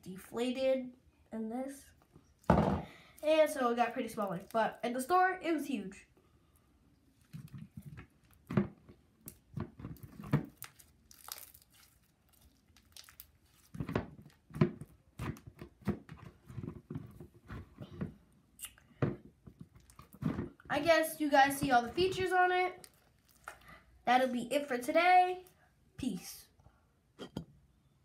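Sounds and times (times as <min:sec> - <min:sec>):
slime squishing wet squelches: 0:06.4 - 0:16.7, 0:18.5 - 0:24.0.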